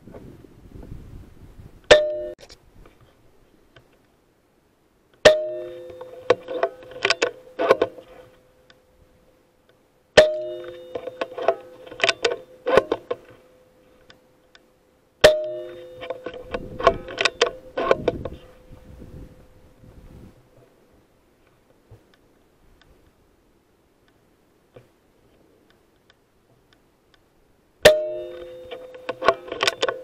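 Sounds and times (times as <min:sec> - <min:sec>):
sharp mechanical clicks and knocks: 0:05.2 - 0:08.8, 0:10.2 - 0:13.4, 0:14.0 - 0:18.6, 0:27.8 - 0:30.0.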